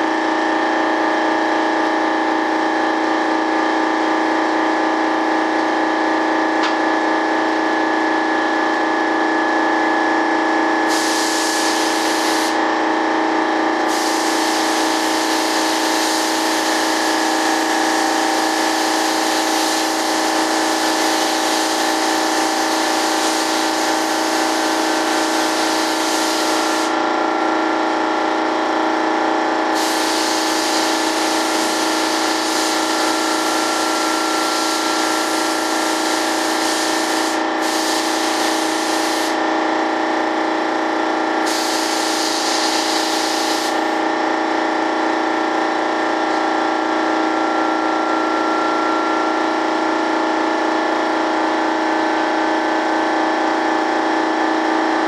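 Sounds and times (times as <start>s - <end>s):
machine hum: 0.0s - 51.6s
air spray gun hissing: 10.9s - 12.6s, 13.9s - 27.0s, 29.7s - 39.4s, 41.4s - 44.0s.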